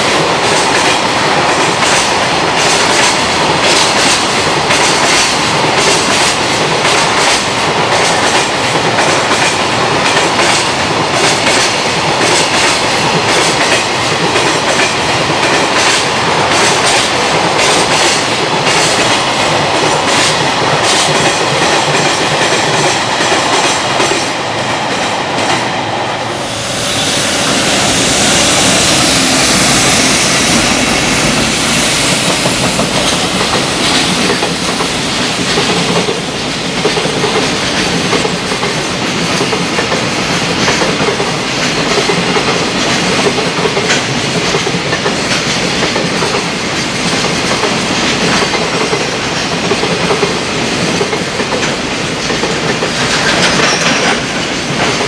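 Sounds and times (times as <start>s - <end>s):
train wheels clicking over rail joints: 0.0s - 25.7s, 27.3s - 55.0s
train rushing: 0.0s - 55.0s.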